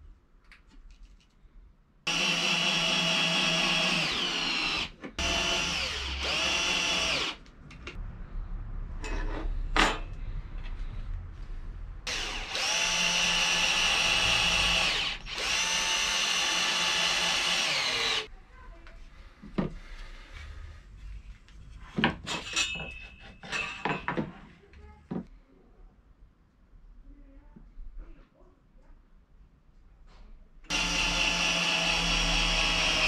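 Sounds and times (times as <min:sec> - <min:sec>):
cordless drill motor whine: 0:02.1 - 0:07.4, 0:12.1 - 0:18.3, 0:30.7 - 0:33.0.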